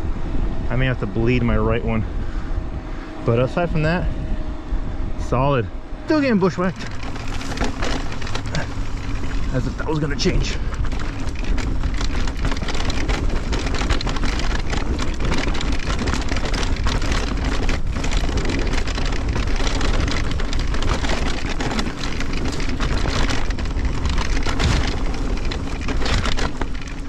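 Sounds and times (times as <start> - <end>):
wind rumbling on microphone: 0.0 - 27.0
bike clattering over bumps: 6.1 - 27.0
tyres crunching on rocky dirt: 6.1 - 27.0.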